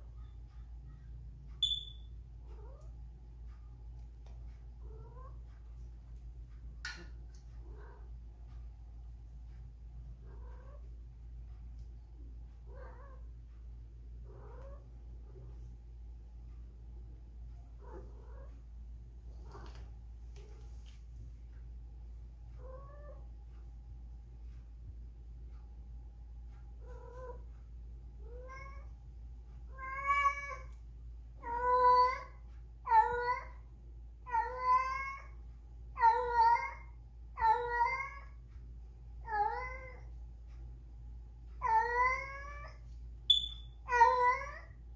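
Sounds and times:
cat crying: 0:29.7 - 0:30.7, 0:31.4 - 0:32.3, 0:32.9 - 0:33.6, 0:34.3 - 0:35.3, 0:36.0 - 0:38.3, 0:39.2 - 0:40.0, 0:41.6 - 0:42.8, 0:43.9 - 0:44.7.

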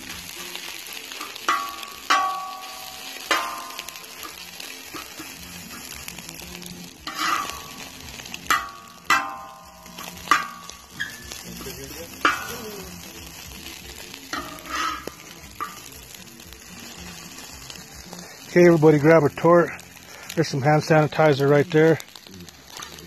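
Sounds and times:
food sizzling: 0:00.0 - 0:23.0
metal spatula scraping and clanking: 0:00.1 - 0:13.5, 0:14.1 - 0:18.5.

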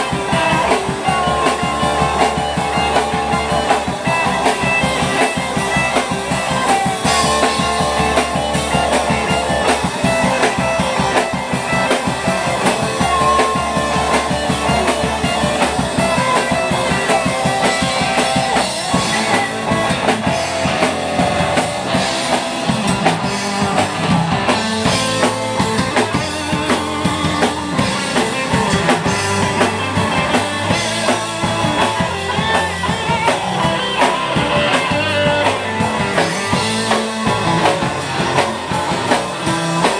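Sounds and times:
drum kit: 0:00.0 - 0:39.9
electric guitars: 0:00.0 - 0:39.9.

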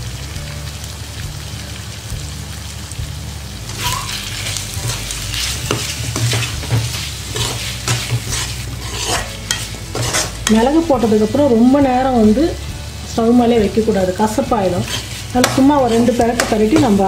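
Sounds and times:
chicken sizzling in oil: 0:00.0 - 0:17.0
spatula scraping pan: 0:03.7 - 0:11.1, 0:14.4 - 0:17.0.

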